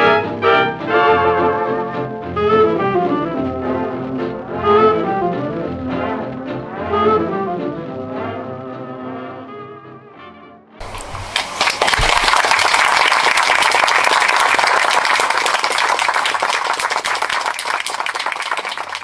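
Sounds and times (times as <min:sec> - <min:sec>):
brass music: 0:00.0 - 0:10.8
audience applause: 0:10.8 - 0:19.0.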